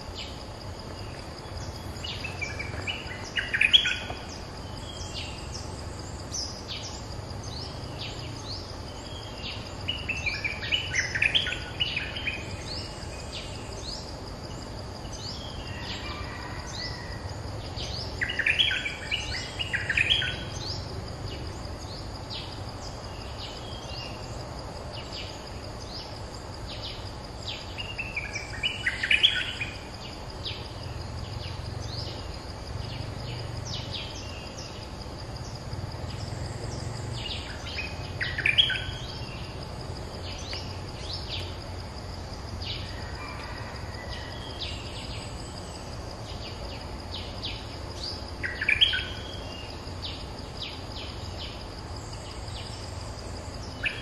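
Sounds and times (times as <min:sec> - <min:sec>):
birds singing bubbly song: 0:00.0 - 0:15.8, 0:35.4 - 0:39.6.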